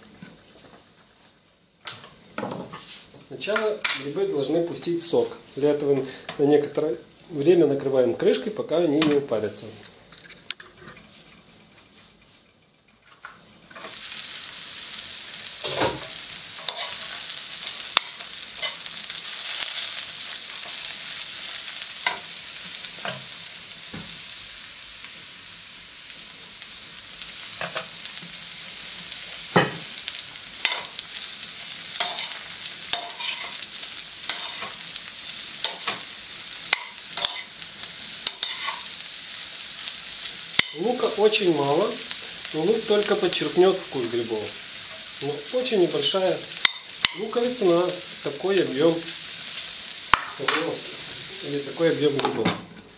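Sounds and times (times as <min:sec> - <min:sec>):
mushrooms sizzling in a pan: 0:01.3 - 0:10.1, 0:13.2 - 0:52.9
metal spoon scraping a pan: 0:16.6 - 0:18.9, 0:30.6 - 0:31.0, 0:32.0 - 0:33.6, 0:34.2 - 0:34.8, 0:35.6 - 0:36.0, 0:36.7 - 0:37.6, 0:38.2 - 0:39.0.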